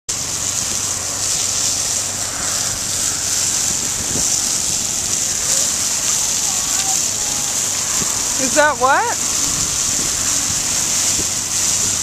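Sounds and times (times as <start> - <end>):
slurry jetting from hose nozzle: 0.1 - 12.0.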